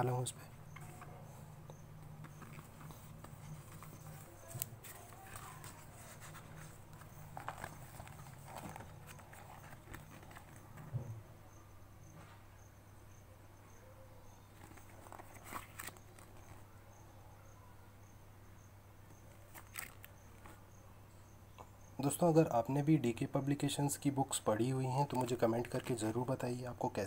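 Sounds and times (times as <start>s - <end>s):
faint steady hum: 0.0s - 27.0s
book pages turning: 2.0s - 11.0s, 14.5s - 16.6s, 19.3s - 20.6s, 24.9s - 26.3s.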